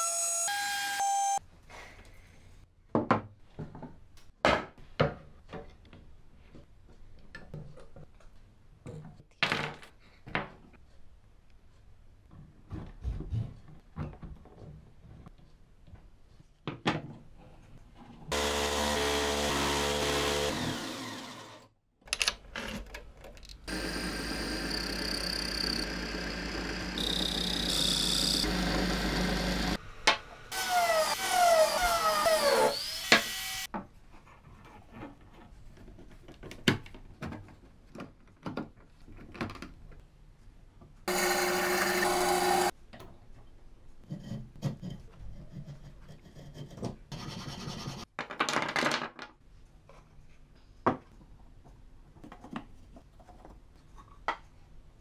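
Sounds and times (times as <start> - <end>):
wood lathe with gouge cutting: 18.3 - 21.6, 23.7 - 29.8, 41.1 - 42.7
band saw cutting wood: 18.3 - 21.7, 23.7 - 29.8, 30.5 - 33.7, 41.1 - 42.7
power tool running: 18.3 - 21.7, 23.7 - 29.8, 30.5 - 33.7, 41.1 - 42.7
wooden parts clicking: 22.1 - 23.7.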